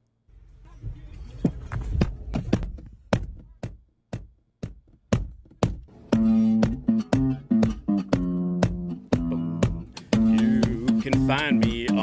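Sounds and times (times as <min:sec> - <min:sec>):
sharp knocks and thumps: 0:00.8 - 0:11.9
acoustic guitar strumming: 0:06.0 - 0:12.0.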